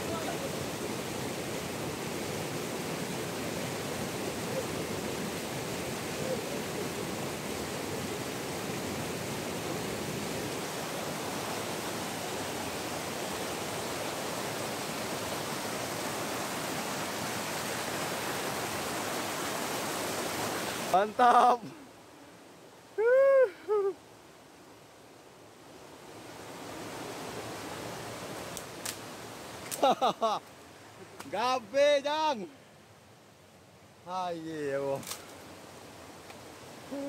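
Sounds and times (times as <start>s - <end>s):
river rapids rushing: 0.0s - 22.1s.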